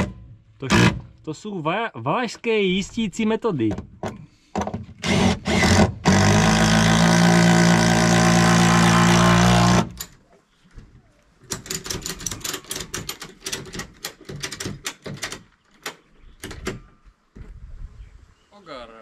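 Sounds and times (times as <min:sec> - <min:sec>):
power drill driving screw: 0:05.0 - 0:10.1.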